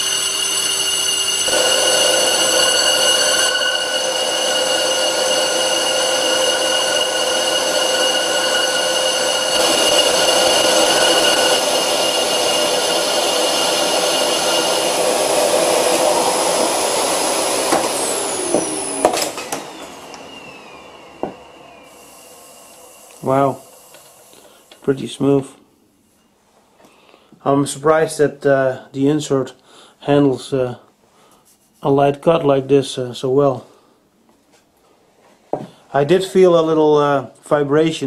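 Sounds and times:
lathe motor whine: 0.0s - 24.9s
hiss of cutting tool: 21.8s - 24.8s.

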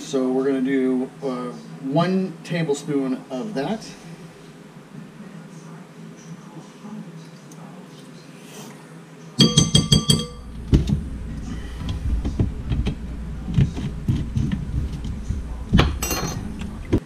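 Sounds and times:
metal spoon clinking glass bowl: 9.4s - 10.5s, 15.8s - 16.6s
low rumble: 10.4s - 17.0s.

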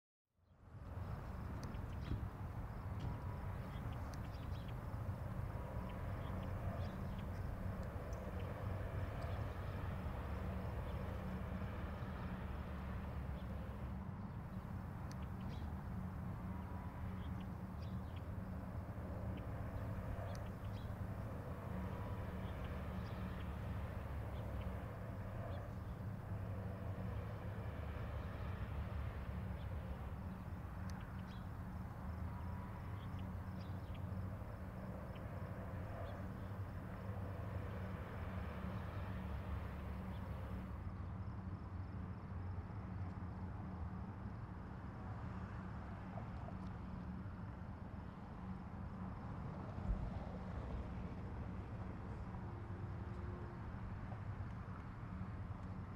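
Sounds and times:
low hum: 0.8s - 41.2s.

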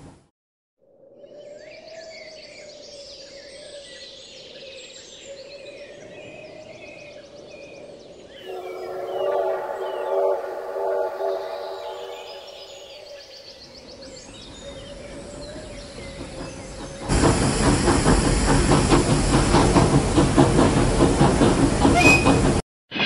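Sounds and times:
faint train whistle: 8.4s - 13.3s, 21.9s - 22.6s
steam locomotive chuffing: 8.5s - 13.3s, 13.9s - 22.6s.

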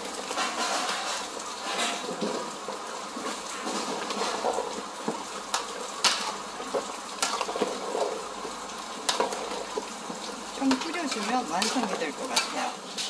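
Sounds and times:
thick sauce bubbling: 0.0s - 13.0s.

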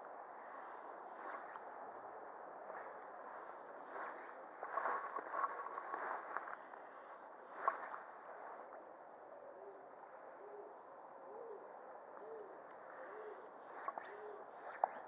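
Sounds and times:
bird hooting: 10.4s - 14.5s.

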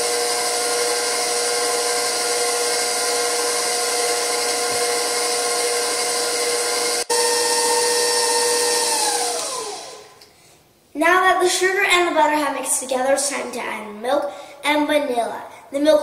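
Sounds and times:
stand mixer motor whine: 0.0s - 10.2s.

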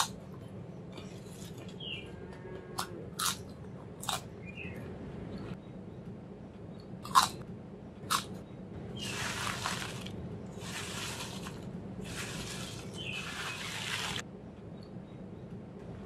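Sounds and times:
potato chip crunching: 3.2s - 3.4s, 9.0s - 14.2s
chips rustling and crackling: 9.0s - 14.2s.

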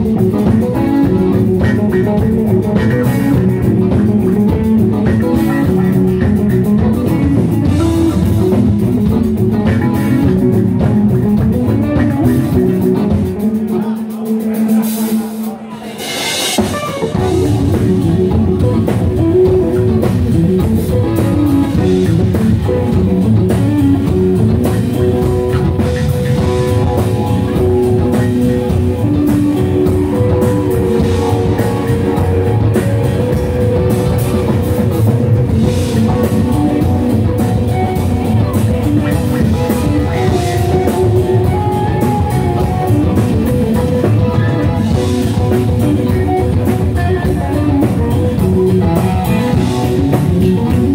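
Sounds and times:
drum kit: 0.0s - 50.9s
electric guitars: 0.0s - 50.9s
keyboard: 0.0s - 50.9s.

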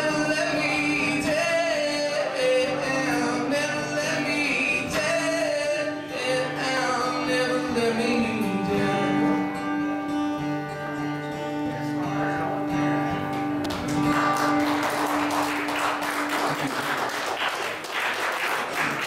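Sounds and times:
acoustic guitars ringing chord: 0.0s - 17.1s
audience applause: 13.7s - 19.0s.

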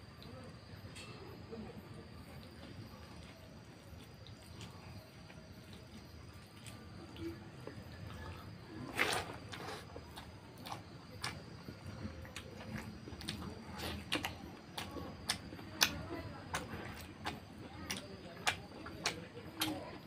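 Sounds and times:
fingers squishing wet rice: 2.8s - 20.0s.

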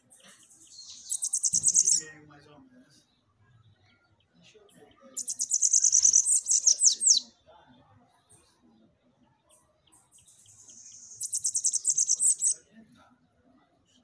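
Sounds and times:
bird song buzzy trill: 0.0s - 2.1s, 5.2s - 7.3s, 9.9s - 12.6s.

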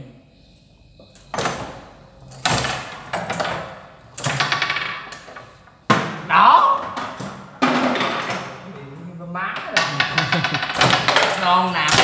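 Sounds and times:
foosball knocks and rattles: 2.5s - 8.6s, 9.6s - 12.0s.

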